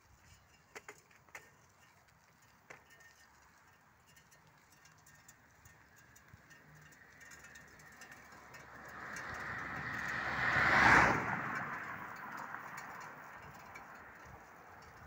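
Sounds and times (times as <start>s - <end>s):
car driving past: 7.8s - 13.2s.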